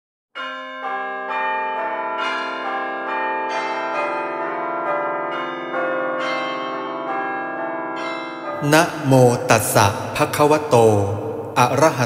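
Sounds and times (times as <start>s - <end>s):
bells ringing: 0.4s - 12.0s.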